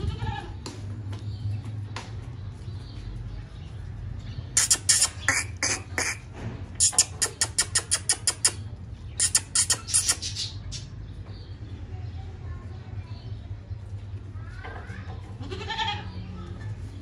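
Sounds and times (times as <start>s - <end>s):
chickens squawking: 4.5s - 10.8s.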